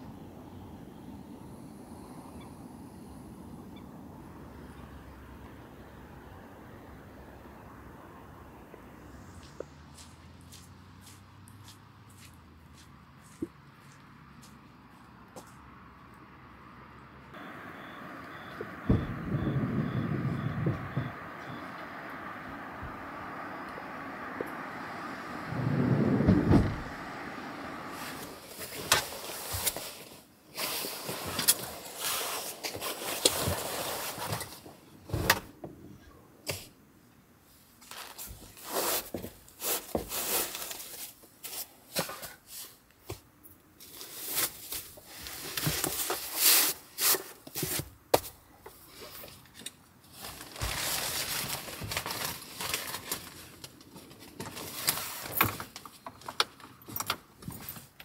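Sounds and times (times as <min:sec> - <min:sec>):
fabric rustling: 0:50.1 - 0:55.8.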